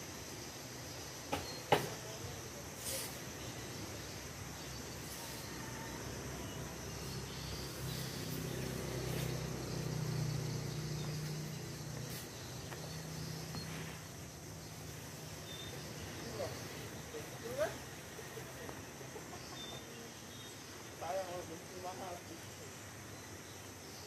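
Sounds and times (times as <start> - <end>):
insects hissing: 0.0 - 24.0
passing vehicle engine hum: 5.4 - 18.6.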